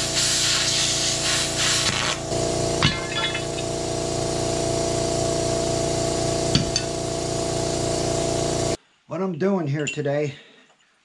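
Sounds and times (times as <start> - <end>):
plasma cutter hissing: 0.0 - 3.8
steady machine hum: 1.0 - 8.8.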